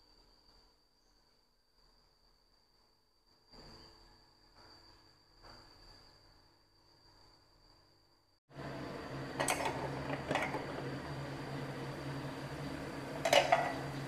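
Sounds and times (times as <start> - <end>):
low hum: 8.5 - 14.0
pot boiling hard: 8.5 - 14.0.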